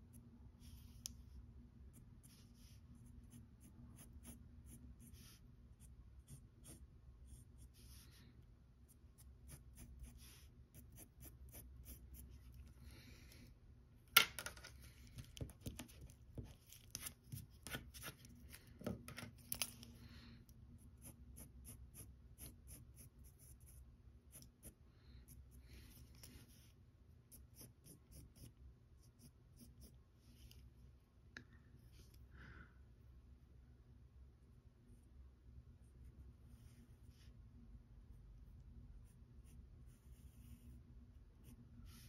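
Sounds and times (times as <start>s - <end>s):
pencil scratching on paper: 1.9s - 8.2s, 8.9s - 12.7s, 15.4s - 18.3s, 20.8s - 30.6s.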